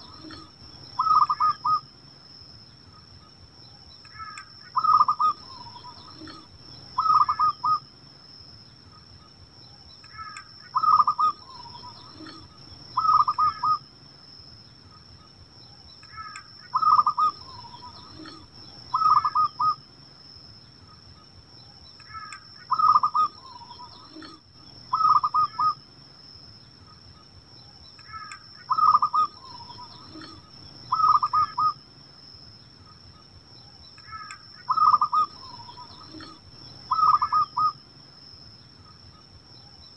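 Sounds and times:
dove cooing: 0:00.0 - 0:01.8, 0:04.2 - 0:07.8, 0:10.2 - 0:13.8, 0:16.2 - 0:19.8, 0:22.1 - 0:25.8, 0:28.1 - 0:31.8, 0:34.1 - 0:37.8.

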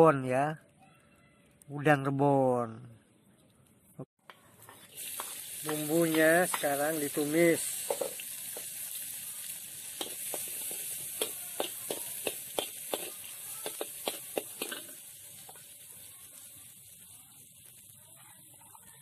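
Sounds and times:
food sizzling in hot oil: 0:04.3 - 0:19.0
metal spatula scraping wok: 0:04.6 - 0:15.8.

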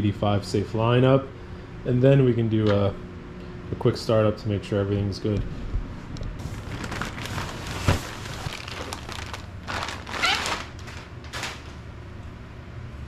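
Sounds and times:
cardboard rustling and scraping: 0:06.4 - 0:11.8.

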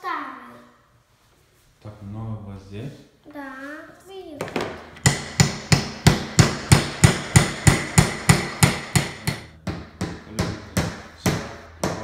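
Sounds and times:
hammer tapping nails into wood: 0:05.0 - 0:12.0.

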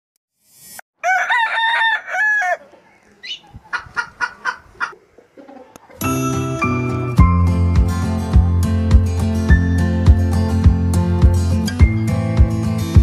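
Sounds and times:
rooster crowing: 0:01.0 - 0:03.0
chicken clucking: 0:01.1 - 0:06.1
music: 0:06.0 - 0:13.0.

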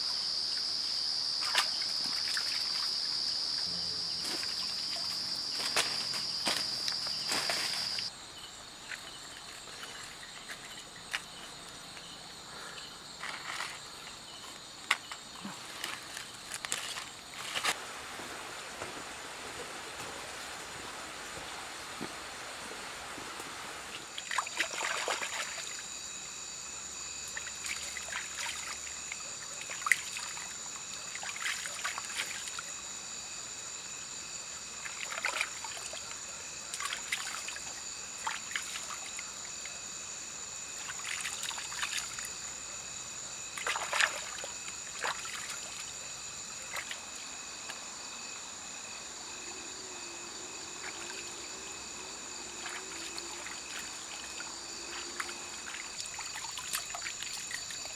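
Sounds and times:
night insects chorus: 0:00.0 - 0:57.9
hands splashing in stream: 0:04.2 - 0:08.1, 0:24.2 - 0:25.8, 0:43.5 - 0:46.0, 0:52.6 - 0:57.9.

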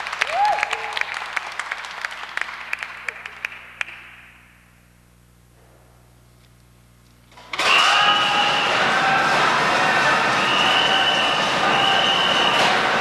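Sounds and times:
audience applause: 0:00.0 - 0:04.0, 0:07.6 - 0:13.0
loud noisy drone with high tones: 0:07.5 - 0:13.0.

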